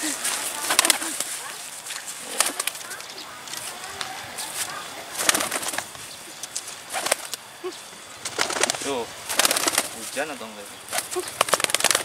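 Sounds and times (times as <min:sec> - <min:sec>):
pigeon wing claps: 0:00.6 - 0:01.3, 0:02.3 - 0:04.1, 0:05.2 - 0:07.4, 0:08.2 - 0:10.0, 0:10.9 - 0:12.0.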